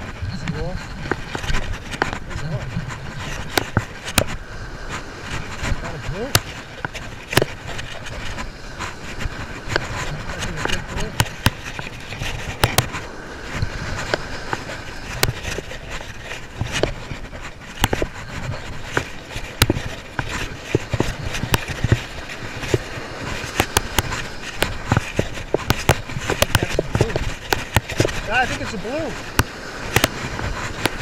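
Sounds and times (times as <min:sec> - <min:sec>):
wind noise on microphone: 0:00.0 - 0:31.0.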